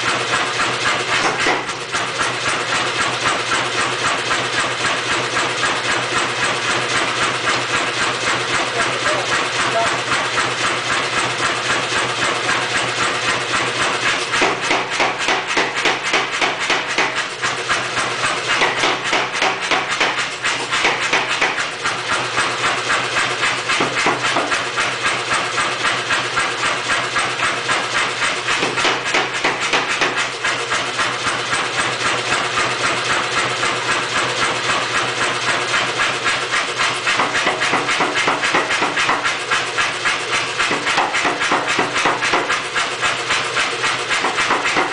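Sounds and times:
power hammer striking hot steel: 0.4 - 2.3, 13.7 - 22.2, 23.6 - 24.7, 28.1 - 31.3, 36.0 - 44.9.

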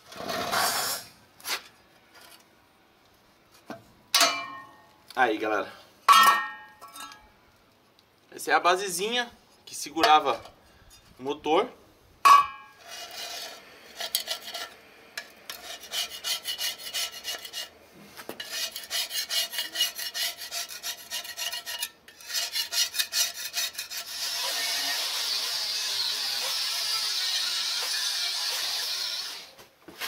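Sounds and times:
steady hiss: 10.5 - 19.4
hand tool rasping on metal: 12.8 - 17.8, 18.4 - 28.9.

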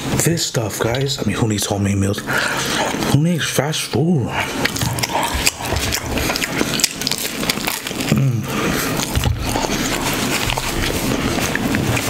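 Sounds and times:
person chewing with wet smacking: 4.3 - 12.0
person humming: 8.1 - 8.5.

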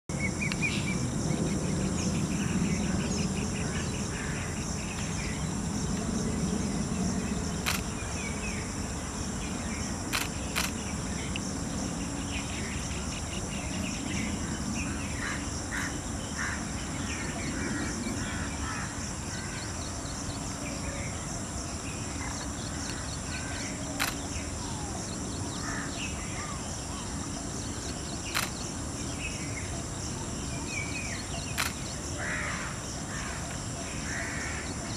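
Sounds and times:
high-pitched insect drone: 0.1 - 34.9
sharp clicks: 7.6 - 7.9, 10.1 - 11.4, 24.0 - 24.3, 28.3 - 28.6, 31.5 - 31.8
small birds calling: 9.4 - 29.9, 30.5 - 34.9.

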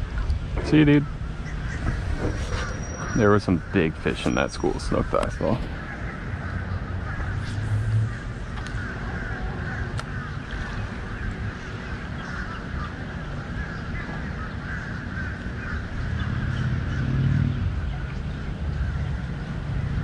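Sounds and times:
low rumble: 0.0 - 12.0
birds calling and chattering: 0.0 - 20.0.

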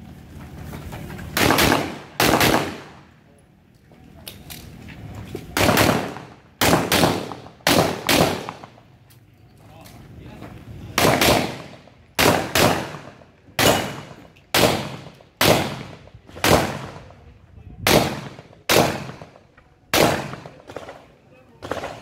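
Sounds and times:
handgun shots with echo: 11.0 - 17.0, 17.9 - 21.0.

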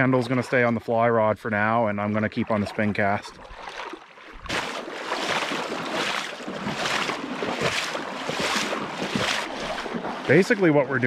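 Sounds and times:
wading through a stony brook: 0.0 - 11.0.

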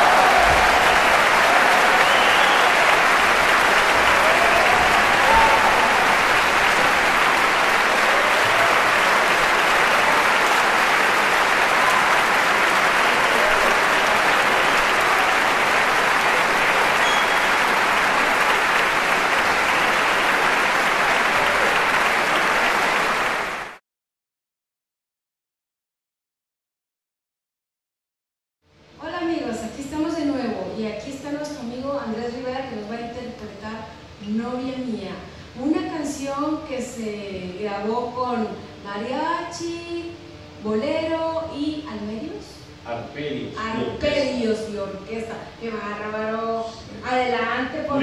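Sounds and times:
audience applauding: 0.0 - 23.8.

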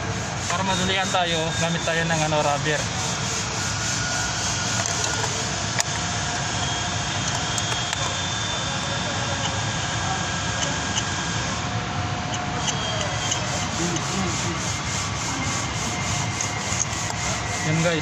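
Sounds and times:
machine rumble and hiss: 0.0 - 18.0
sharp metallic click: 7.2 - 8.2.

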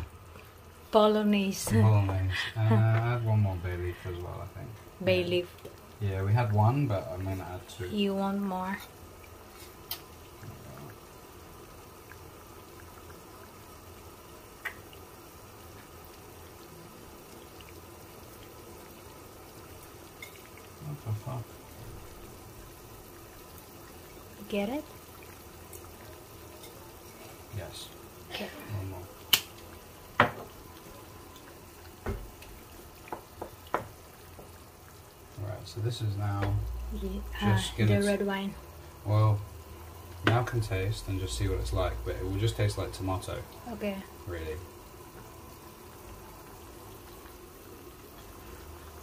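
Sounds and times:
sauce simmering with pops: 0.0 - 49.0
wooden spoon knocking frying pan: 30.1 - 30.6, 33.0 - 34.5.

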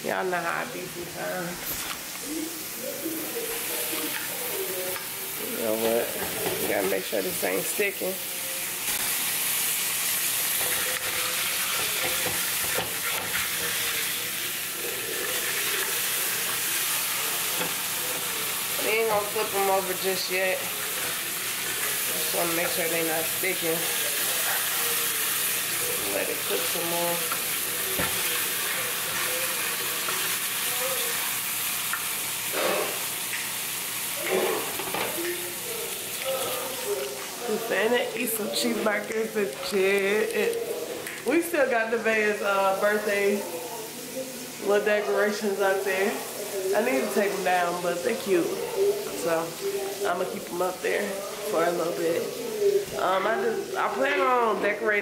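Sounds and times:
patties sizzling in frying pan: 0.0 - 55.0
spatula scraping and tapping pan: 10.6 - 13.6.

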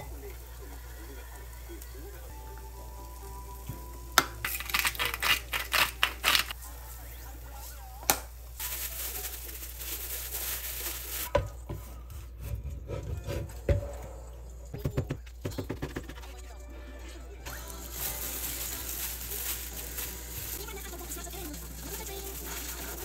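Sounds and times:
seeds rattling in a shaker: 4.4 - 6.6, 8.6 - 11.3, 17.5 - 23.0.

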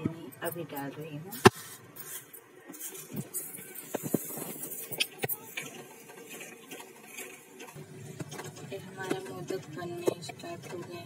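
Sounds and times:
wooden spatula scraping pan: 5.6 - 11.0.

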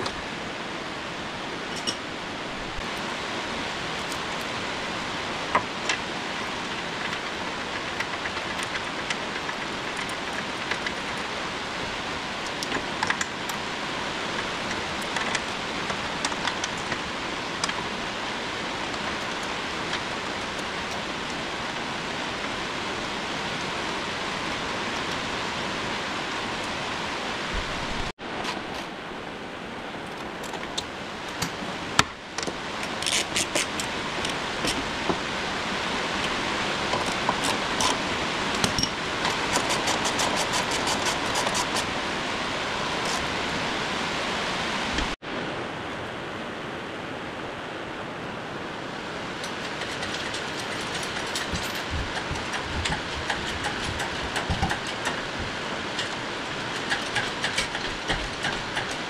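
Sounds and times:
metal parts and tools clinking: 1.7 - 2.0, 49.4 - 55.4.

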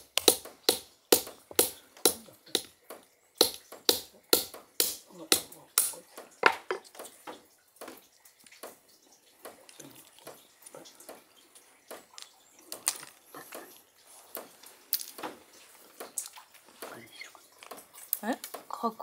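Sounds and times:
walnut shell cracking: 0.0 - 7.0, 11.9 - 13.8.

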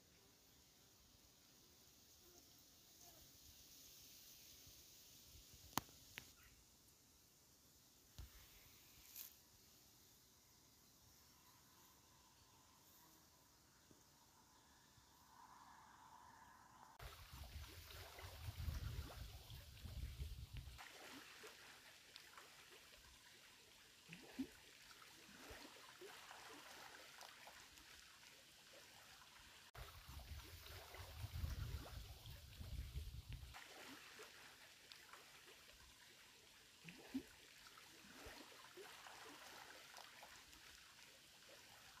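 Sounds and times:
soft outdoor hiss: 0.0 - 42.0.

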